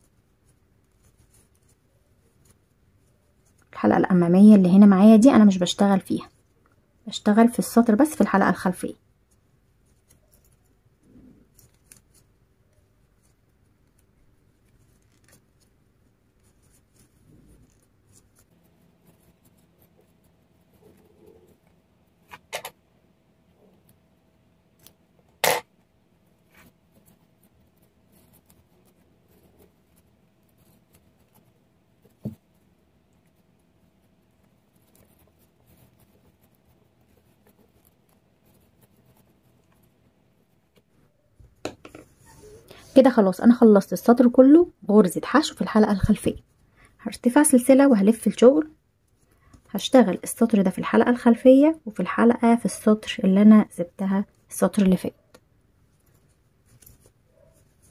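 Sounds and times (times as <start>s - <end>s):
rustling of cord: 0.0s - 4.8s, 8.0s - 43.2s, 54.2s - 57.9s.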